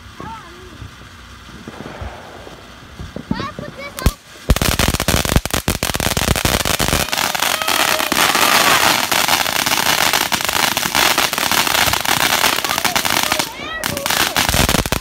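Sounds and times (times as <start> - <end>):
firework fountain crackling and popping: 0.0 - 15.0
firework fountain hissing: 0.0 - 15.0.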